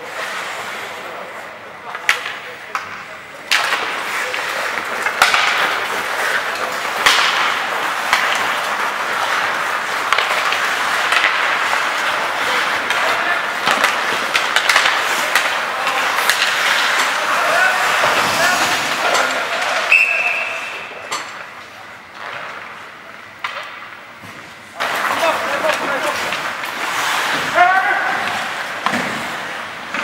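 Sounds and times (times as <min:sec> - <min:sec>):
sticks clacking on puck: 0:01.9 - 0:20.1
skate blades scraping ice: 0:03.5 - 0:21.0, 0:24.3 - 0:30.0.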